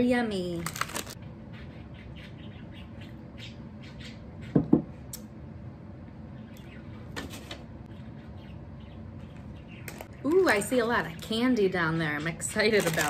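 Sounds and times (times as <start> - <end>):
bird chirping and squawking: 1.1 - 4.6, 6.3 - 7.2, 7.9 - 10.3.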